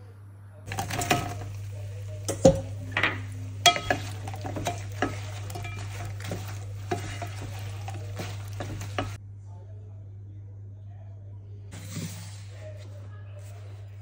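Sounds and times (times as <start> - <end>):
bowl and spatula knocking pan: 0.7 - 9.2
food sizzling in a pan: 0.7 - 9.2.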